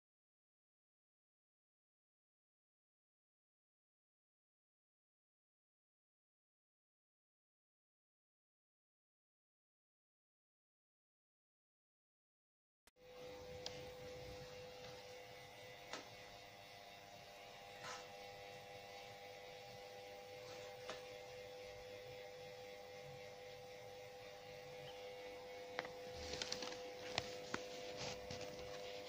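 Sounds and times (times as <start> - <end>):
quiet steady hum: 13.0 - 29.0.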